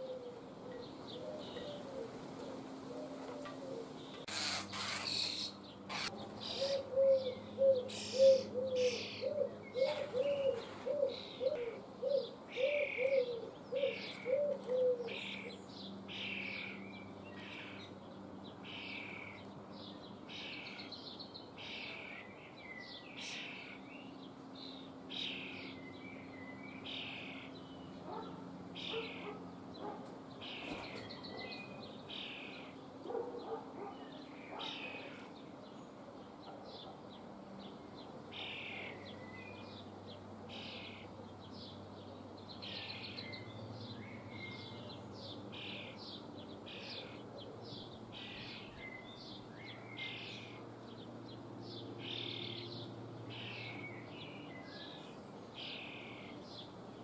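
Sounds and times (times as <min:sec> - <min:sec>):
faint town hum: 0:00.0 - 0:57.0
nestlings rasping begging calls: 0:04.2 - 0:06.9, 0:07.8 - 0:10.0, 0:23.2 - 0:23.8, 0:28.8 - 0:31.1, 0:33.4 - 0:35.2.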